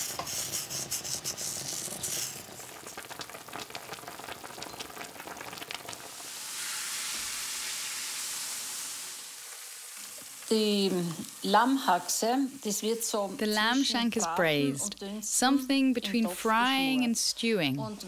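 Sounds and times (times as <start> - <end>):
meat frying crackling and popping: 0.0 - 14.1
steady sizzle: 0.0 - 18.0.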